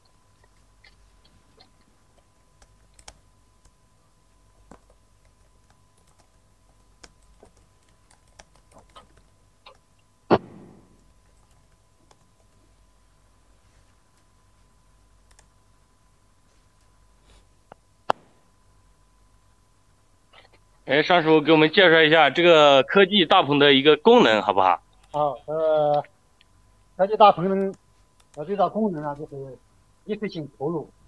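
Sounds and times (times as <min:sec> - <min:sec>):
loud thump: 0:10.3 - 0:10.9.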